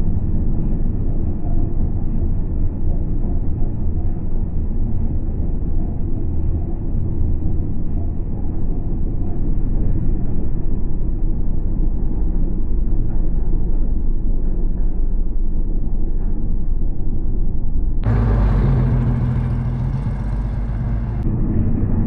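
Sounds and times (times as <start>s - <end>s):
muffled truck engine rumbling: 18.0s - 22.0s.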